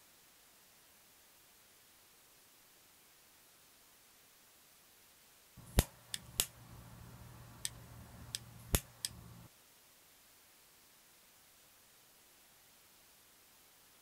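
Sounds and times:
electrical parts clicking and tapping: 5.6s - 9.5s
low steady hum: 5.6s - 9.5s.

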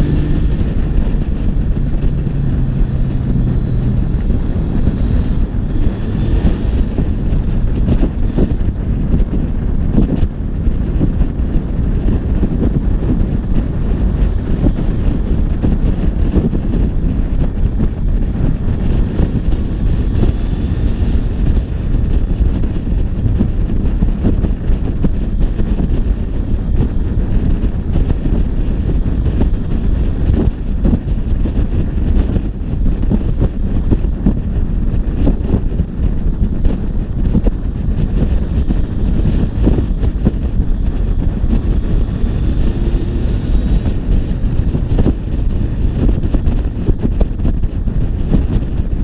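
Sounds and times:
motorcycle cruising: 0.0s - 49.0s
wind buffeting microphone: 0.0s - 49.0s.

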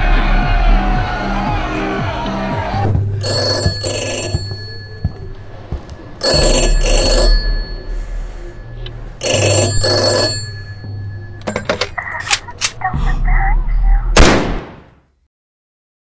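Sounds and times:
desk telephone ringing: 3.2s - 12.2s.

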